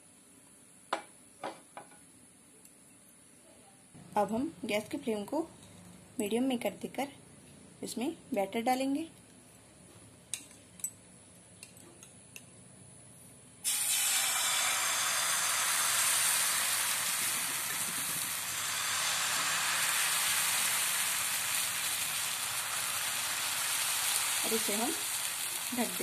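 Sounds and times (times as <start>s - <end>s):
batter sizzling in oil: 13.6s - 26.0s.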